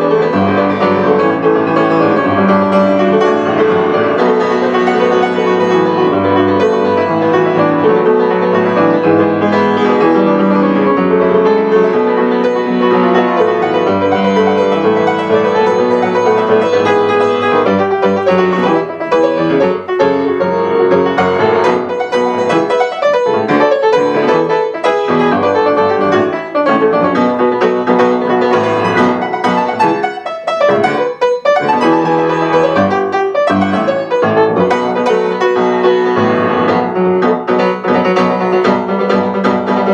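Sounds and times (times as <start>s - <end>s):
grand piano playing chords: 0.0s - 39.9s.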